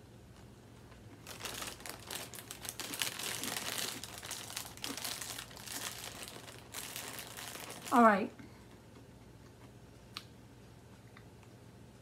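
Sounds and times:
plastic bag crinkling: 1.1s - 8.3s.

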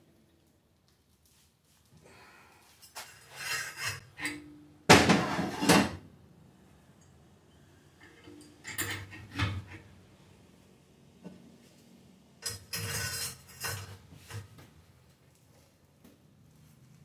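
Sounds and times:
metal scraping and clattering: 2.9s - 4.4s, 12.4s - 14.5s
steel tools clanking: 8.0s - 9.7s, 12.4s - 14.0s.

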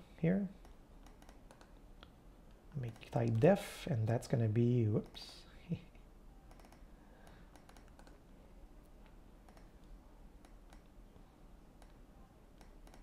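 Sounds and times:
computer mouse clicks: 0.6s - 3.5s, 5.0s - 5.3s, 6.4s - 8.3s, 9.0s - 11.0s, 11.7s - 13.0s.

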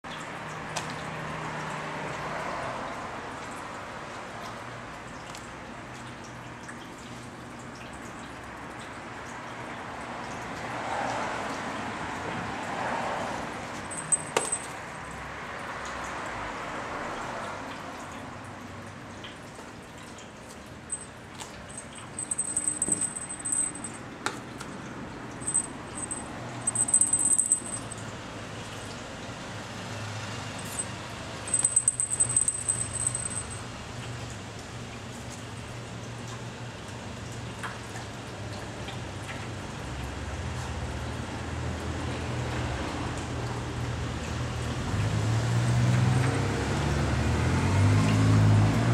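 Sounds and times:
jingle bell jingling: 13.9s - 14.8s, 21.7s - 24.0s, 25.4s - 28.0s, 30.7s - 30.9s, 31.5s - 33.6s.

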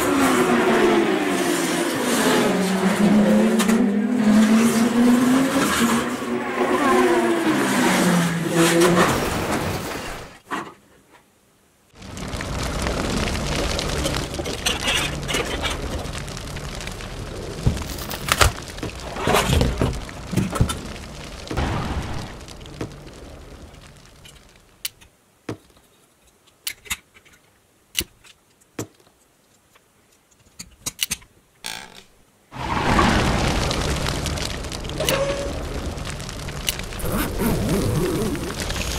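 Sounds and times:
loud rumbling crashing noise: 12.0s - 24.6s, 32.6s - 38.9s
low hum: 12.0s - 24.8s, 32.6s - 38.9s.

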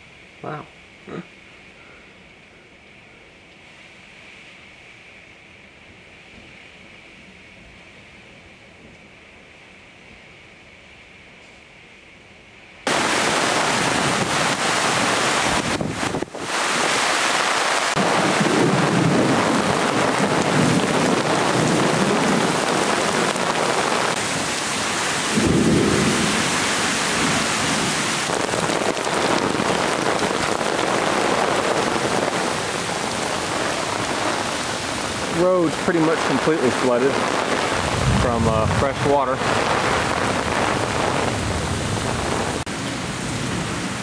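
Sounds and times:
heavy rain pouring: 12.8s - 44.0s
thunder rumbling: 12.9s - 44.0s.

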